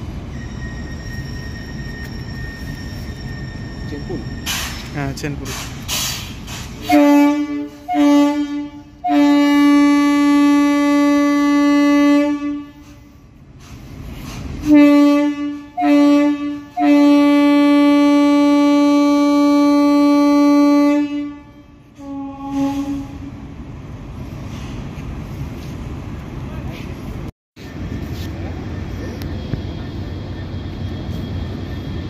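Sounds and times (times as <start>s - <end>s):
locomotive horn blasts: 6.8s - 13.0s, 14.6s - 23.4s.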